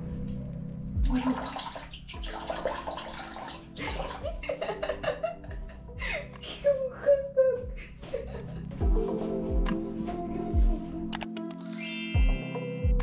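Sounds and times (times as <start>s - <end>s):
water splashing on face: 1.0s - 4.4s
woman laughing: 4.0s - 8.8s.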